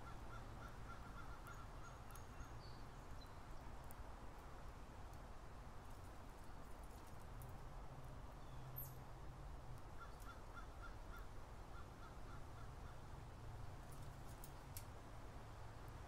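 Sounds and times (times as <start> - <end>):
faint clicks: 13.9 - 14.9.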